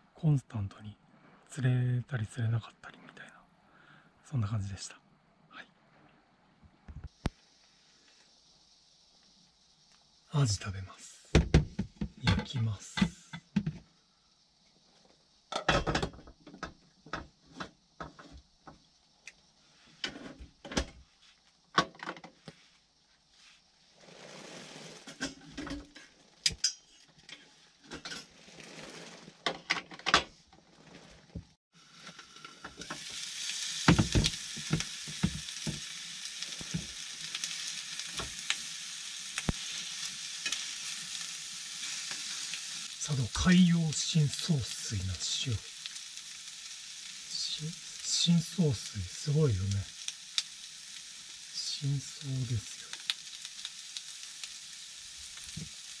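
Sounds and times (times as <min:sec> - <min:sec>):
fish sizzling in a frying pan: 0:07.1 - 0:20.9, 0:31.8 - 0:56.0.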